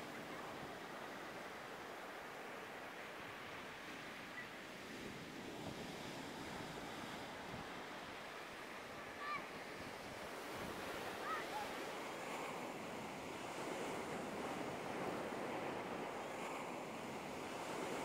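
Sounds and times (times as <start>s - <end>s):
ocean surf breaking: 5.9s - 18.0s.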